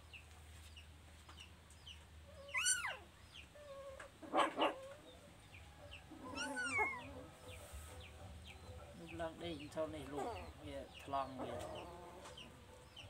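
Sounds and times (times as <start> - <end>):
chicks peeping: 0.0 - 13.0
chicken calls: 2.2 - 9.2, 10.0 - 13.0
chicken clucks: 3.2 - 13.0.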